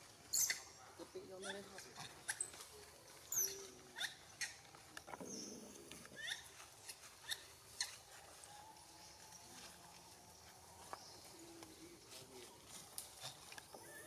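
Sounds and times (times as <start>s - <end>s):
high-pitched animal chirps: 0.3s - 0.8s, 6.2s - 8.0s.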